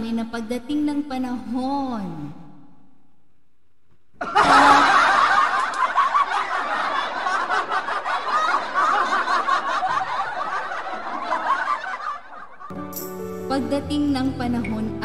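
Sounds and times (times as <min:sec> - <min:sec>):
group of people laughing: 0:04.2 - 0:12.7.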